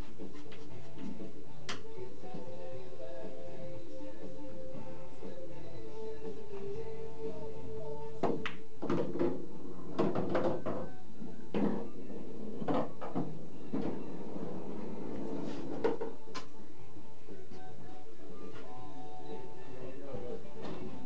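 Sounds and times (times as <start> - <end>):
billiard balls clacking: 8.2 - 16.4.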